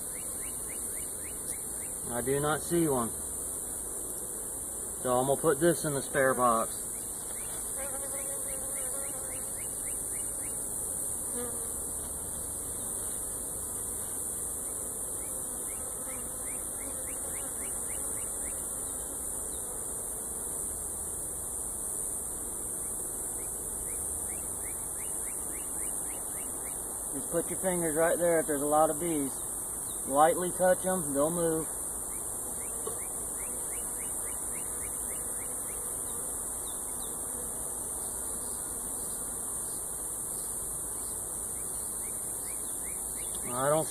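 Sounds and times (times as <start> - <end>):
honeybees humming: 0.0 - 43.9
high-pitched hiss: 22.8 - 32.3, 38.0 - 43.9.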